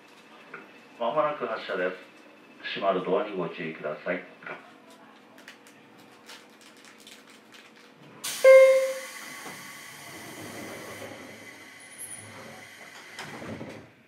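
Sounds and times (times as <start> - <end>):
air hissing: 8.2 - 13.5
train doors clunking shut: 8.2 - 14.0.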